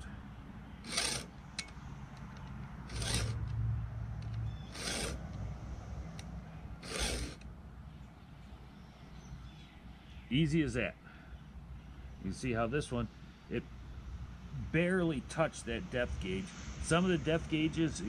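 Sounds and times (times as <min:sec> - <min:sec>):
file rasping on saw chain: 0:00.9 - 0:01.3, 0:02.9 - 0:03.4, 0:04.7 - 0:05.2, 0:06.8 - 0:07.4.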